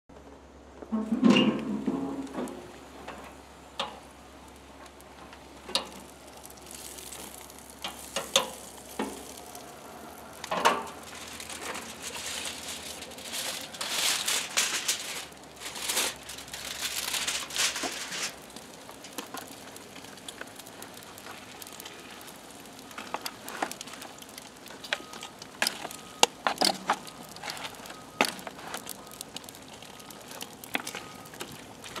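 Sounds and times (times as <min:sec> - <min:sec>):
grill flames hissing: 0:00.2 - 0:32.0
food sizzling: 0:01.6 - 0:32.0
aluminium foil crinkling: 0:02.0 - 0:32.0
tongs clicking and scraping pan: 0:05.6 - 0:09.6.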